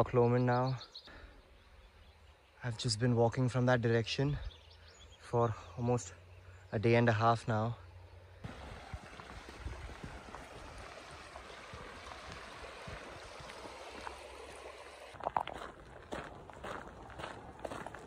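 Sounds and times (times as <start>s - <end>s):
stream running over rocks: 8.4s - 18.0s
footsteps crunching on gravel: 8.5s - 18.0s.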